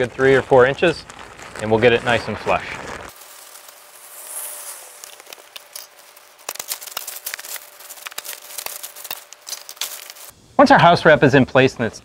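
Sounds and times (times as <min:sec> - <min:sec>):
house wrap rustling and crinkling: 0:00.0 - 0:10.3
sharp crackles: 0:00.0 - 0:10.3.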